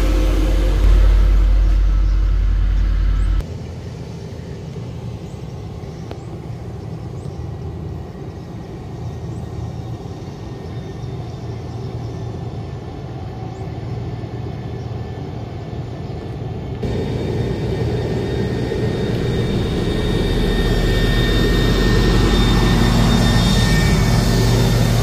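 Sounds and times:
distant heavy machinery rumble: 0:00.0 - 0:25.0
road roller pulsing drone: 0:00.0 - 0:25.0.

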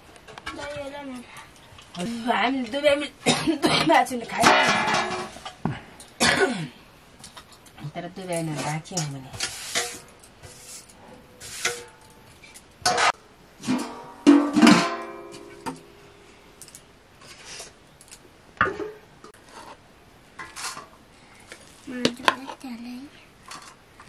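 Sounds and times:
metal dishes and utensils clinking: 0:04.3 - 0:05.6, 0:08.3 - 0:10.9, 0:11.5 - 0:16.0
metal vessel struck and ringing: 0:13.7 - 0:15.8.

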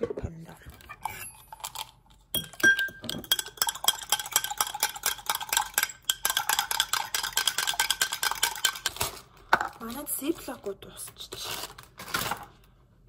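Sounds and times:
utensil clinking against a dish: 0:01.0 - 0:09.0.

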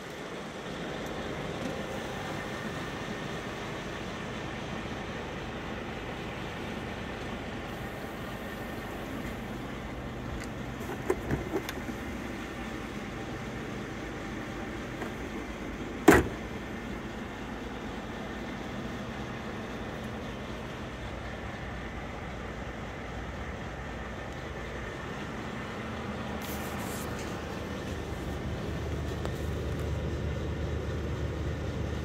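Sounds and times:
low hum in truck cab: 0:00.0 - 0:32.0
locker flap clunk: 0:16.0 - 0:16.5.

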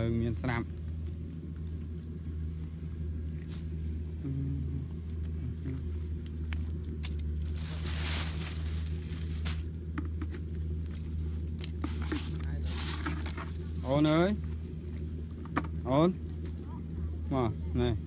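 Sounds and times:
low rumble: 0:00.0 - 0:18.0
wood fire crackling: 0:00.0 - 0:18.0
rustling hiss: 0:01.7 - 0:14.6.

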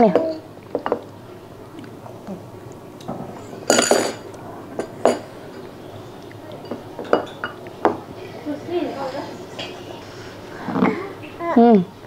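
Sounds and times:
cutlery clinking on plates: 0:03.0 - 0:05.7, 0:06.6 - 0:08.0.

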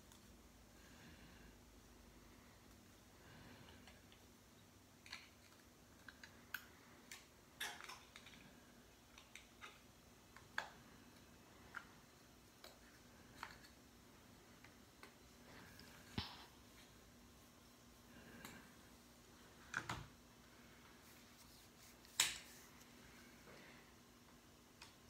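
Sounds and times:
faint room hum: 0:00.0 - 0:25.0.

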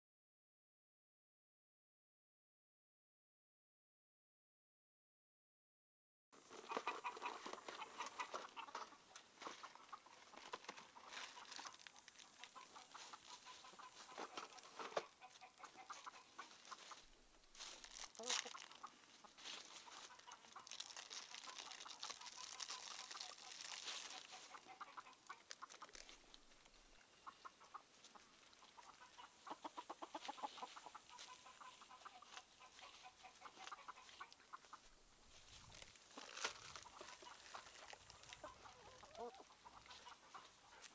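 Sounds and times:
chickens clucking: 0:06.4 - 0:40.9
plastic wrapper crinkling: 0:17.6 - 0:18.9, 0:20.0 - 0:24.5, 0:35.6 - 0:38.5.

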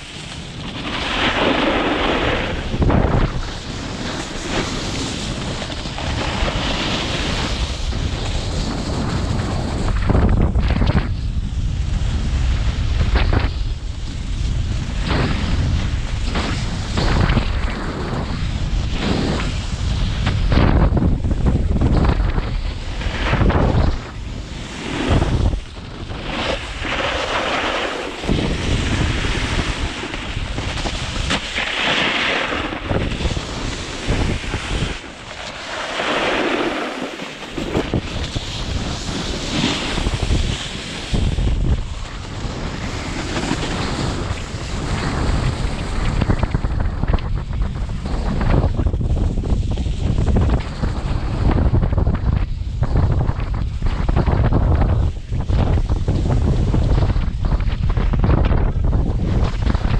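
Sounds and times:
wind buffeting microphone: 0:00.0 - 0:59.9.

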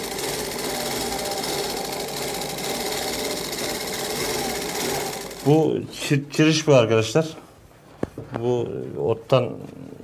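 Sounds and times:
sewing machine running: 0:00.0 - 0:05.7.

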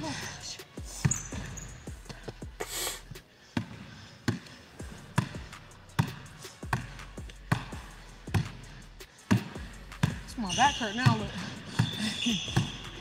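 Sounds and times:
basketball bouncing on wooden floor: 0:00.9 - 0:02.3, 0:06.0 - 0:07.7, 0:09.3 - 0:13.0.

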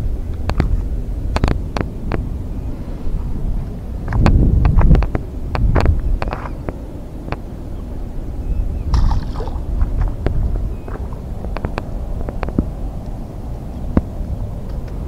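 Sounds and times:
wind rumble on microphone: 0:00.0 - 0:15.0
splashing and streaming water: 0:08.9 - 0:13.0.

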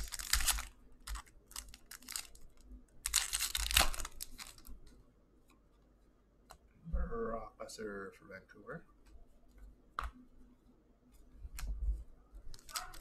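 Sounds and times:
card rustling: 0:00.0 - 0:04.8, 0:12.4 - 0:13.0
plastic sleeve crinkling: 0:00.0 - 0:04.9, 0:12.4 - 0:13.0.

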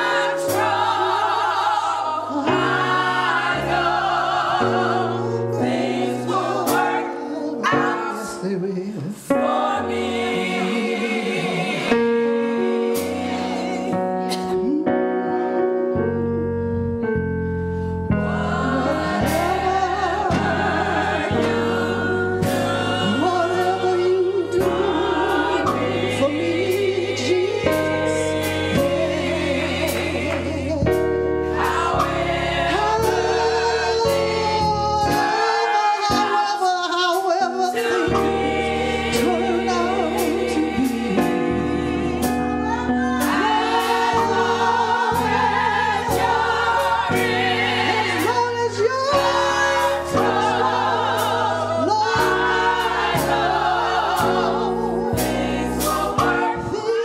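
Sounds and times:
gospel choir singing: 0:00.0 - 0:57.0
band accompaniment with beat: 0:27.6 - 0:34.4, 0:43.2 - 0:48.6, 0:52.2 - 0:56.6.

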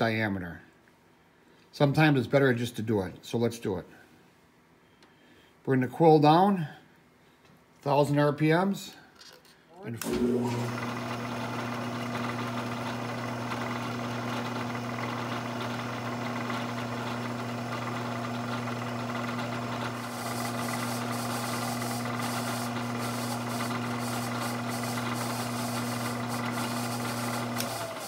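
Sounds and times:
milling machine motor hum: 0:10.0 - 0:28.0.

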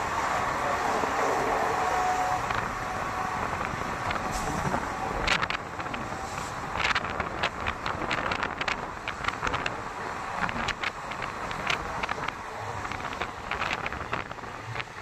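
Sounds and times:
train running noise: 0:00.0 - 0:15.0
wind on microphone: 0:00.0 - 0:15.0
sharp clicks and rattles: 0:03.5 - 0:15.0.

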